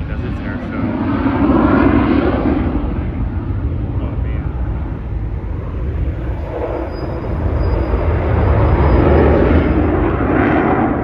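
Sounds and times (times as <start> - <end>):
fighter jet engine roar: 0.0 - 11.0.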